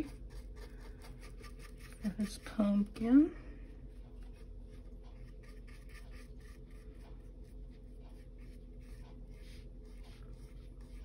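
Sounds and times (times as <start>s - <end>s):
paintbrush strokes on wood: 3.8s - 11.0s.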